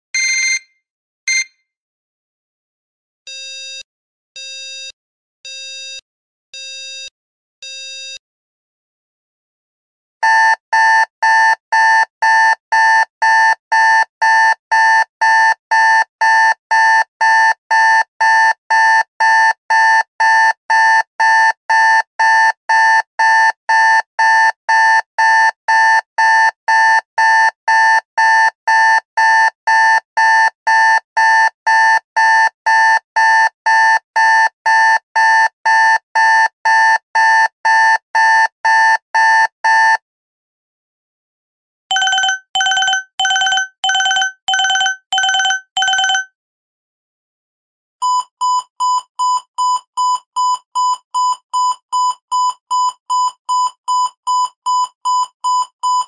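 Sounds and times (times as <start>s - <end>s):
alarm clock beeping: 0.2s - 0.6s, 41.9s - 46.3s.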